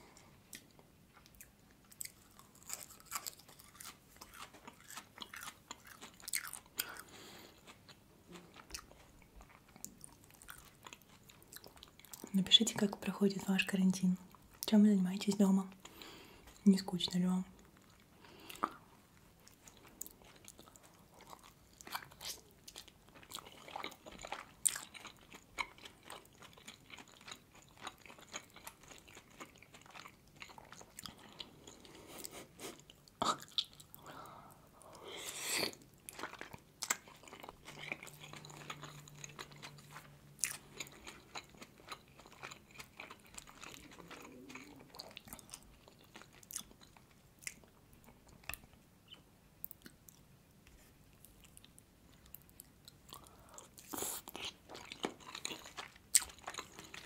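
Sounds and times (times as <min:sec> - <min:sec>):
chewing and biting dumplings: 0:00.1 - 0:12.8, 0:17.6 - 0:34.0, 0:34.8 - 0:57.0.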